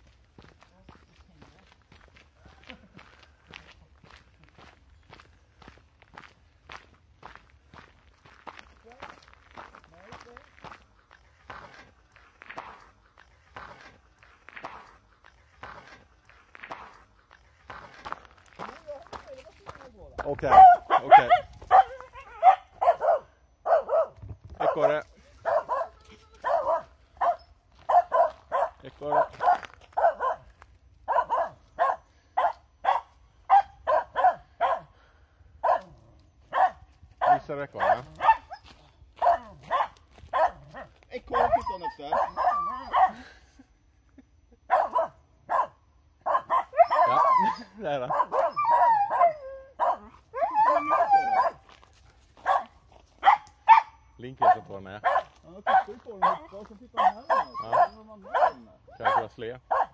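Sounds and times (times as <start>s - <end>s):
dog barking in short barks: 20.5s - 30.5s, 31.1s - 34.9s, 35.6s - 35.9s, 36.5s - 38.6s, 39.2s - 43.2s, 44.7s - 47.2s, 52.4s - 59.9s
dog whining: 41.3s - 43.0s, 48.4s - 51.6s.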